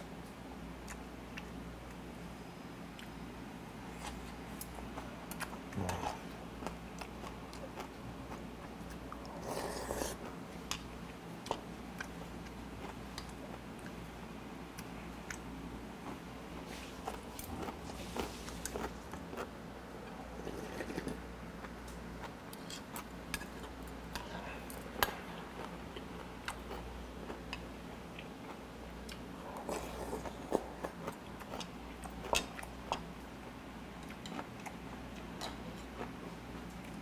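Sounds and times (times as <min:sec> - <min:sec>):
low steady hum: 0:00.0 - 0:37.0
person chewing: 0:00.8 - 0:01.6, 0:04.0 - 0:14.0, 0:14.8 - 0:33.1.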